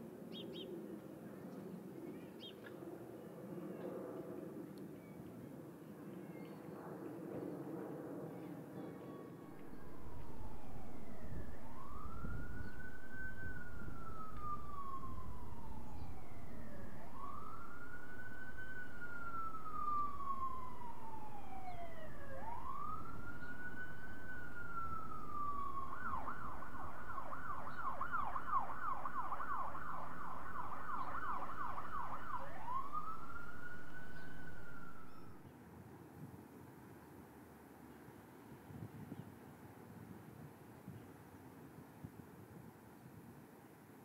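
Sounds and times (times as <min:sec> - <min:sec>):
emergency vehicle siren: 0:08.7 - 0:35.4
city traffic rumble: 0:09.4 - 0:35.4.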